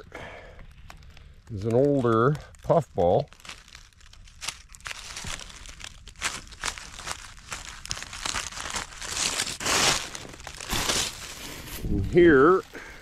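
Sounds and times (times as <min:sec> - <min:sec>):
dry leaves crunching underfoot: 0:03.0 - 0:12.9.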